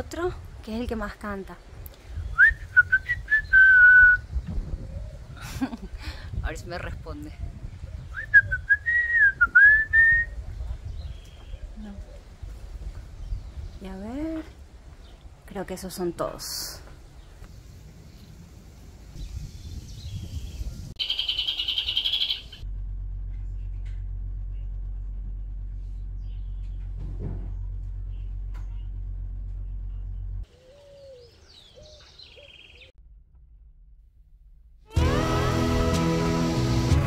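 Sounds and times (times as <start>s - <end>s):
high bird chirping: 19.2s - 22.6s, 30.6s - 32.9s
low rumble: 22.4s - 30.5s, 33.0s - 35.6s.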